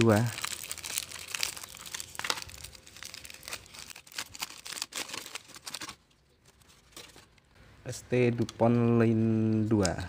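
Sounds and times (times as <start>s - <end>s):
aluminium foil crinkling: 0.0s - 7.4s.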